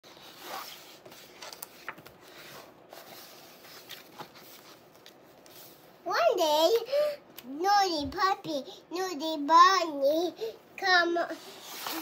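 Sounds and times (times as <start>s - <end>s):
paper pages rustling: 0.1s - 5.6s, 11.6s - 12.0s.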